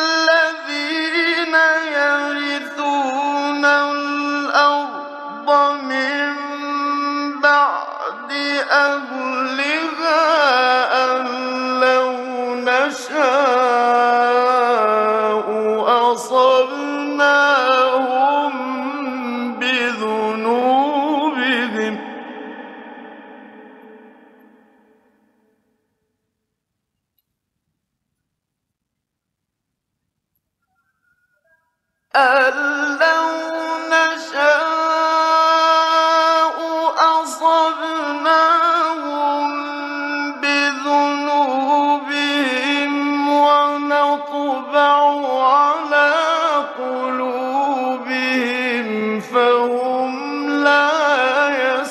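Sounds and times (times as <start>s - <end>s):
man reciting melodically: 0.0s - 24.2s, 32.1s - 51.9s.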